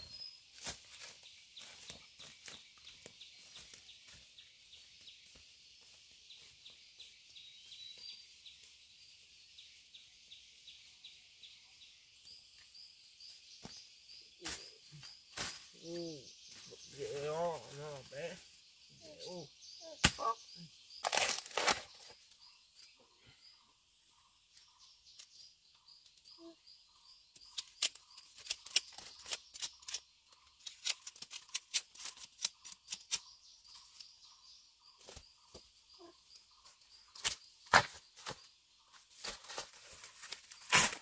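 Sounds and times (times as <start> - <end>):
sharp snaps and crackles: 27.3 - 33.3.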